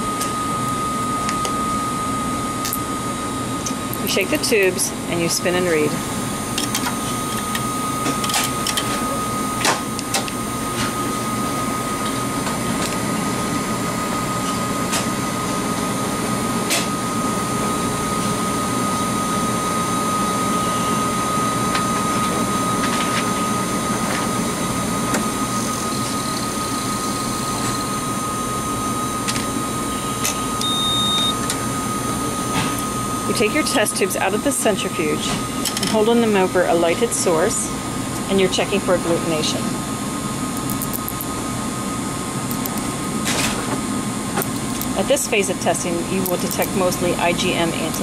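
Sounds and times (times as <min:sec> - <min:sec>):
short high beep: 0:30.6 - 0:31.4.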